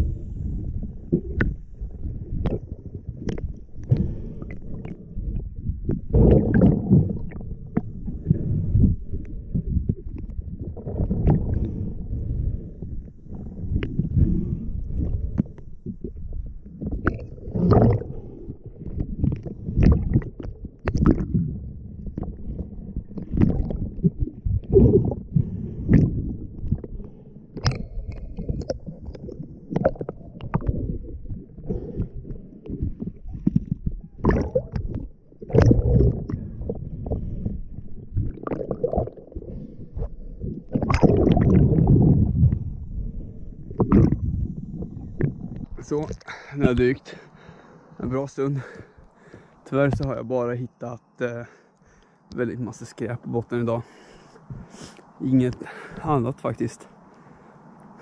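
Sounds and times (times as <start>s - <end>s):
muffled underwater wash: 0.0s - 58.0s
rush of water: 16.8s - 18.3s
swishes of moving water: 16.8s - 46.2s.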